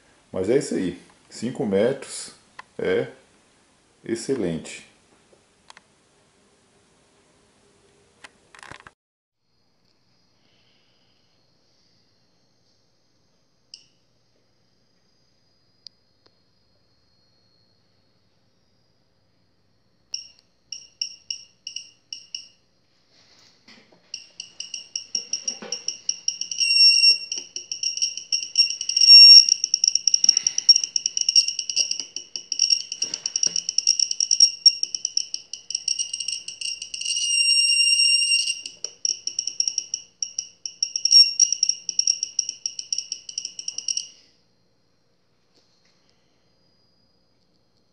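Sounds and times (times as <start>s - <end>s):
high-pitched electronic beeping: 24.2s - 44.1s.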